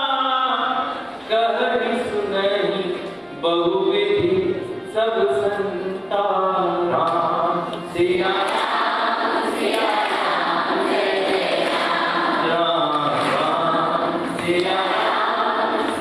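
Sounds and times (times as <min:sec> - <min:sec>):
girls chanting a hymn in unison: 0:08.4 - 0:12.6, 0:13.2 - 0:16.0.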